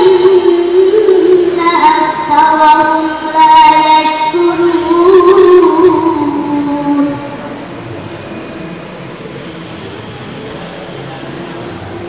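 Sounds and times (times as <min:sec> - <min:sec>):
girl reciting melodically: 0:00.0 - 0:07.6.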